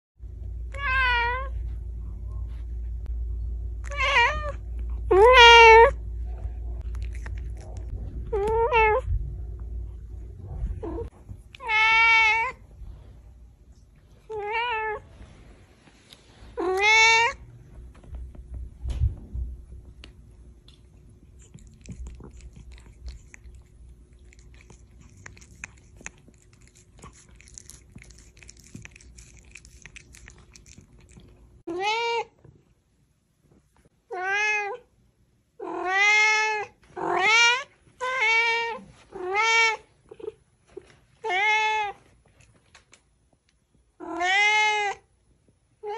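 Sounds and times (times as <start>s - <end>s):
cat meowing: 3.8s - 6.0s, 44.0s - 45.0s.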